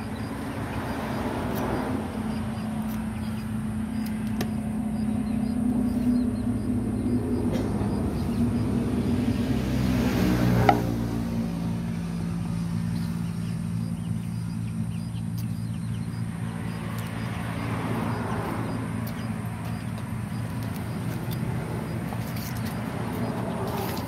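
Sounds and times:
engine running: 0.0 - 24.0
sharp knock: 10.6 - 10.9.

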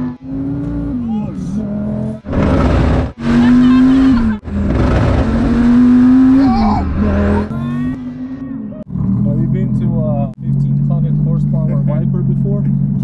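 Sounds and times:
car engine accelerating hard: 0.0 - 13.0.

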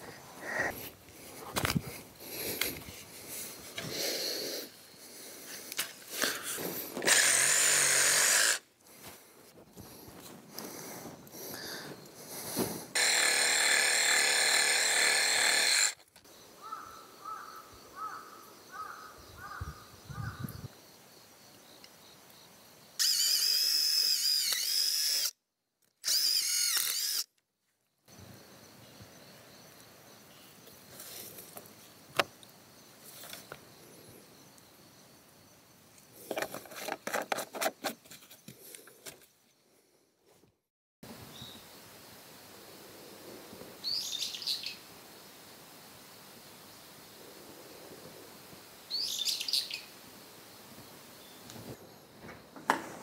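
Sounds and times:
power tool whirring: 7.0 - 8.6, 12.9 - 16.0, 23.0 - 25.4, 26.0 - 27.3.

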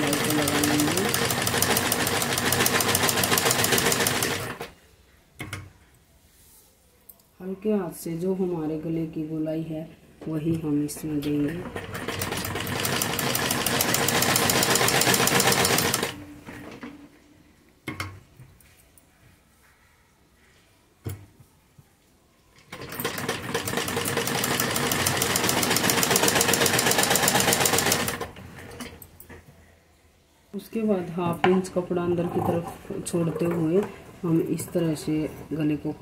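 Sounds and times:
sewing machine stitching fabric: 0.0 - 4.7, 11.0 - 17.0, 22.6 - 29.0.

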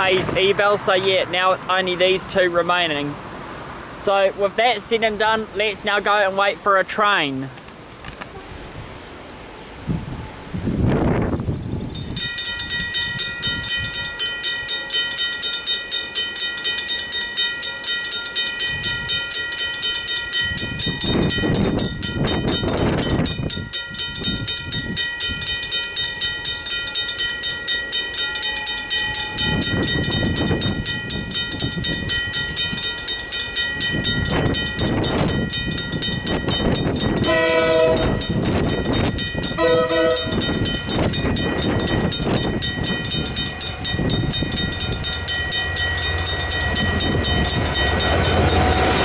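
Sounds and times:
road vehicles passing: 0.0 - 49.0
level-crossing bell ringing: 12.0 - 49.0.

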